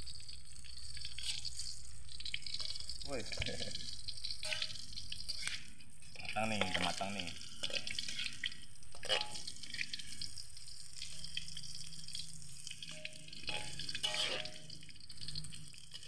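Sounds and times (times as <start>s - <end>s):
tofu sizzling in oil: 0.0s - 16.0s
metal spatula scraping wok: 1.1s - 1.8s, 4.4s - 6.7s, 7.4s - 10.2s, 12.8s - 16.0s.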